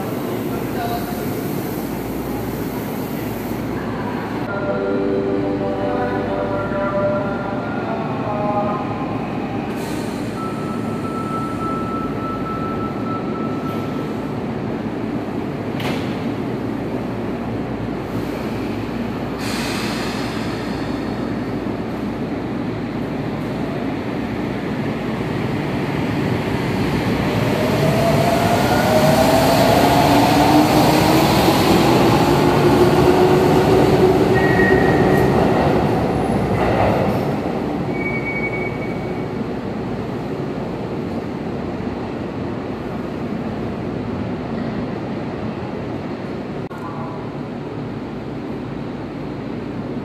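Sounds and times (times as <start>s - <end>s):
train squeals: 34.2s - 35.4s, 37.9s - 39.4s.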